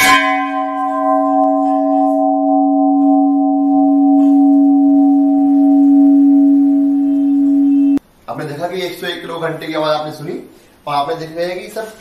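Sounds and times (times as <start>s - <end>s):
temple bell ringing: 0.0s - 8.0s.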